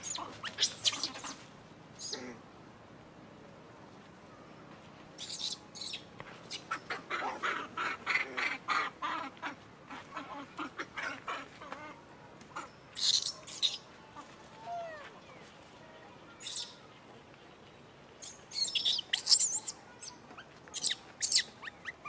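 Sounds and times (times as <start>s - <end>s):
animal squeaks and chirps: 0.0s - 1.4s, 5.2s - 6.9s, 12.6s - 13.8s, 16.4s - 16.8s, 18.2s - 22.0s.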